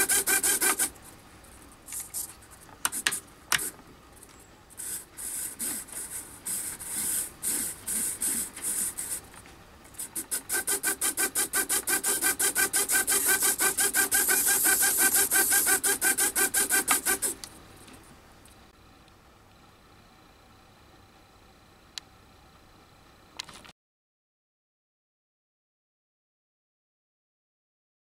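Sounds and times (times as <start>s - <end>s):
servos whirring: 0.0s - 1.0s, 1.9s - 3.8s, 4.7s - 17.5s.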